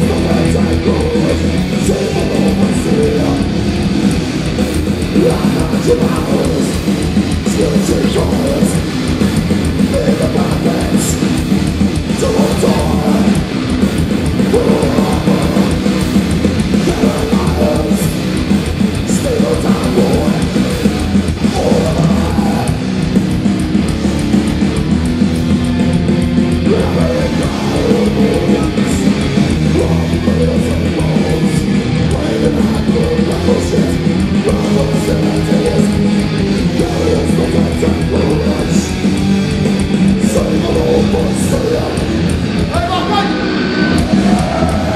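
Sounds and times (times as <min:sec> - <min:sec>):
live death metal band: 0:00.0 - 0:44.9.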